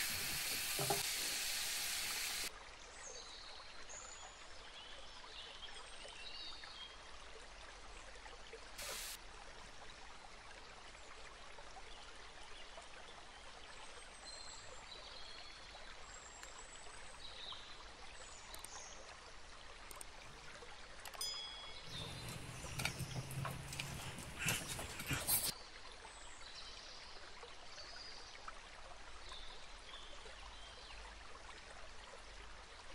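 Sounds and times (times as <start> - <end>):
faint rushing hiss: 0.0 - 2.5, 8.8 - 9.2
cutlery clinks: 21.2 - 25.5.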